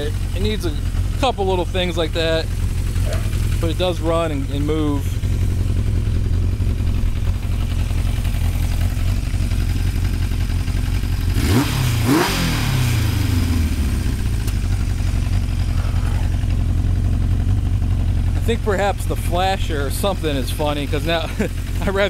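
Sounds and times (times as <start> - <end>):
motorcycle engine idling: 0.0 - 22.0.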